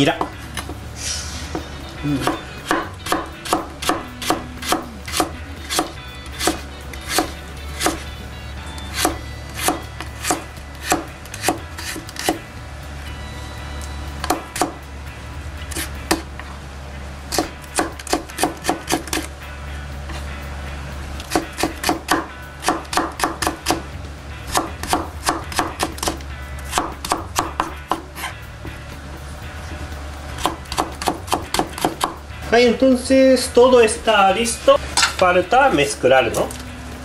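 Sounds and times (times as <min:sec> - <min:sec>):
knife chopping on wooden board: 0:02.2 - 0:08.0, 0:09.0 - 0:12.4, 0:17.3 - 0:19.3, 0:21.2 - 0:23.8, 0:24.5 - 0:28.3, 0:30.4 - 0:32.2.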